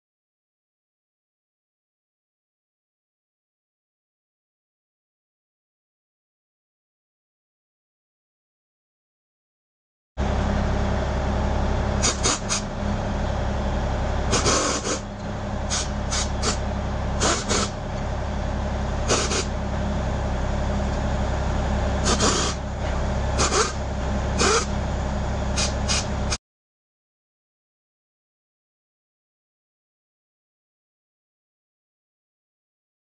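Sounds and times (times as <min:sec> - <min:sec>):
pneumatic air hammer hammering: 0:12.0 - 0:12.7, 0:14.3 - 0:15.1, 0:15.7 - 0:16.6, 0:17.2 - 0:17.8, 0:19.0 - 0:19.5, 0:22.0 - 0:23.8, 0:24.4 - 0:24.7, 0:25.5 - 0:26.4.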